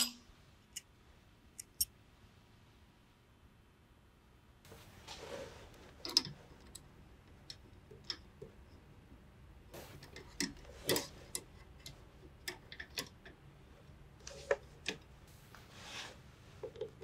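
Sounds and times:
soft rustle: 0:04.7 - 0:06.6, 0:09.7 - 0:11.4, 0:15.2 - 0:17.0.

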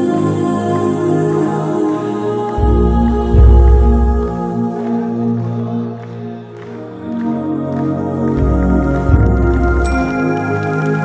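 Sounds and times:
deep low drone: 0:00.0 - 0:11.0
slow held music tones: 0:00.0 - 0:11.0.

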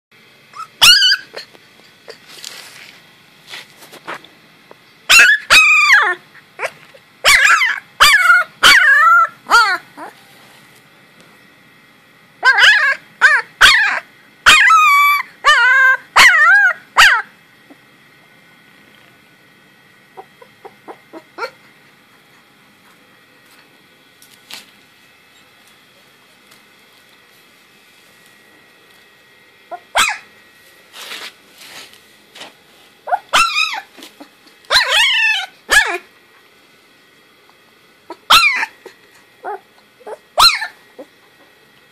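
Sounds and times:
puppy yelping: 0:00.5 - 0:02.4, 0:05.1 - 0:10.2, 0:12.4 - 0:17.3, 0:20.1 - 0:21.6, 0:29.7 - 0:30.3, 0:33.0 - 0:36.1, 0:38.1 - 0:41.2.

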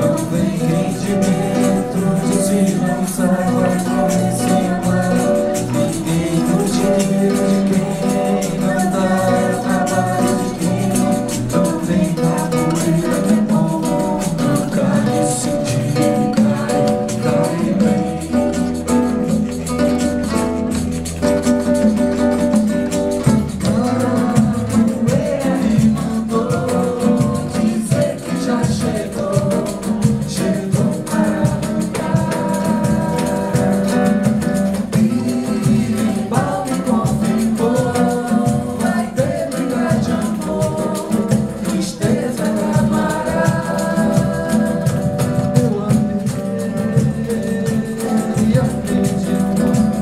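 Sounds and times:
women singing: 0:00.0 - 0:20.3, 0:22.5 - 0:50.0
acoustic guitar: 0:00.0 - 0:50.0
cavaquinho: 0:00.0 - 0:50.0
hand percussion beat: 0:00.0 - 0:50.0.

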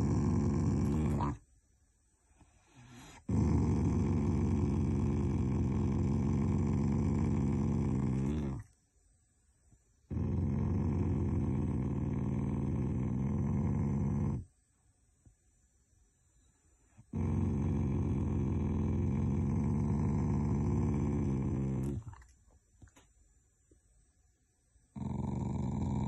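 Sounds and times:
dog growling low: 0:00.0 - 0:01.4, 0:02.8 - 0:08.7, 0:10.1 - 0:14.5, 0:17.0 - 0:22.3, 0:24.9 - 0:26.0.

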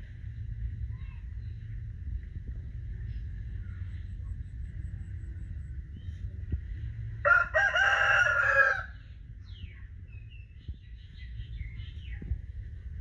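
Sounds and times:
rooster crowing: 0:07.2 - 0:09.0.

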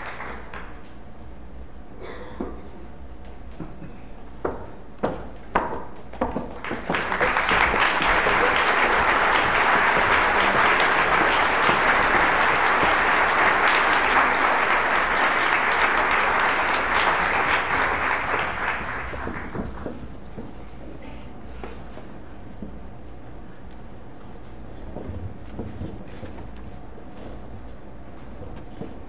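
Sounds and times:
audience applauding: 0:00.0 - 0:00.9, 0:06.4 - 0:20.0.

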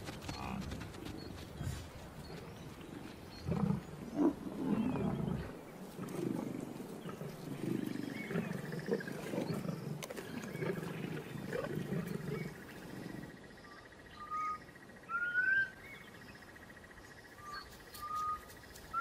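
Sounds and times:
lions growling: 0:00.4 - 0:13.4.

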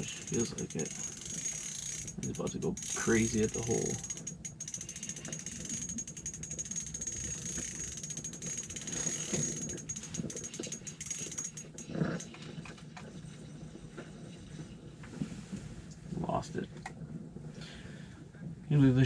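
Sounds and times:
fishing reel gears ticking: 0:00.0 - 0:12.4.

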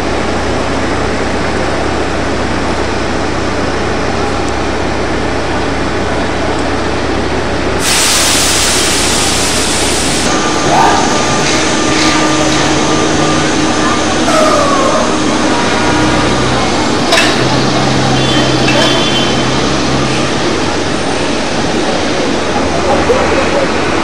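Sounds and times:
trolleybus and traffic rumble: 0:00.0 - 0:24.0
steady tone: 0:07.8 - 0:23.0.

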